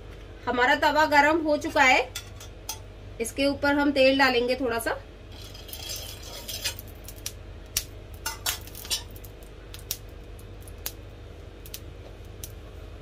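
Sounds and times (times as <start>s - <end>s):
steady low hum: 0.0s - 13.0s
metal spoon clinking on iron pan: 2.1s - 2.8s, 8.2s - 9.2s.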